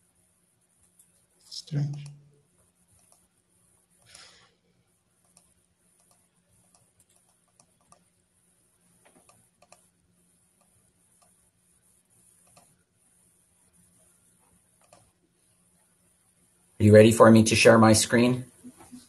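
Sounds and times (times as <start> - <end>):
faint clicks: 2.9 - 3.3, 5.2 - 8.1, 9.0 - 9.9, 14.8 - 15.1
breathy hiss: 4.1 - 4.6.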